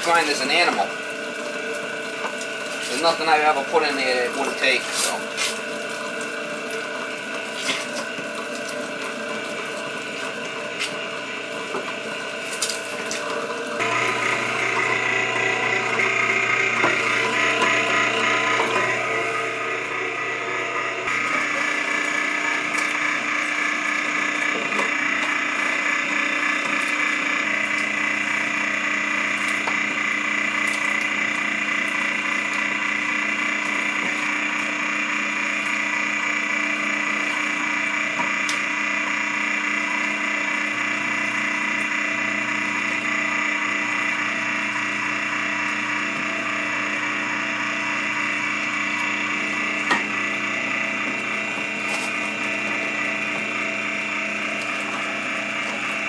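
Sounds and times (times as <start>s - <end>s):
electric meat grinder humming: 0.0s - 56.0s.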